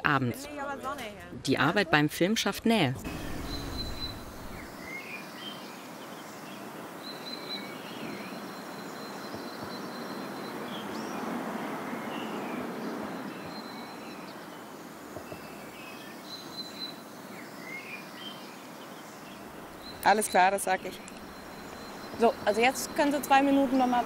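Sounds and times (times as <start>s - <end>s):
steady rushing noise: 3.0s - 8.4s
small birds chirping: 3.1s - 24.0s.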